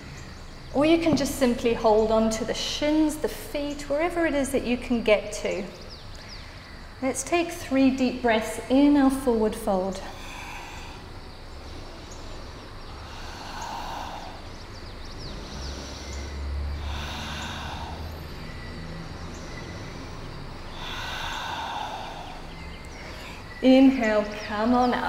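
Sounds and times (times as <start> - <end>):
woman breathing deeply: 10.0 - 23.6.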